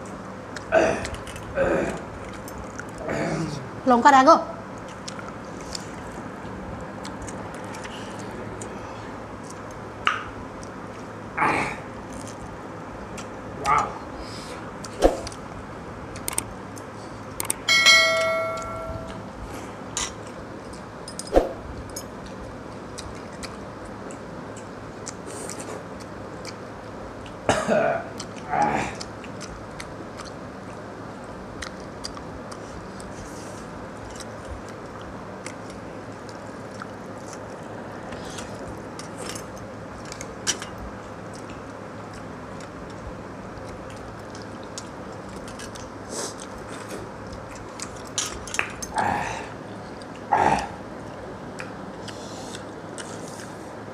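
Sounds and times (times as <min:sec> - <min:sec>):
throat sounds: 0:03.0 - 0:03.7
steel bowl ringing: 0:17.7 - 0:19.2.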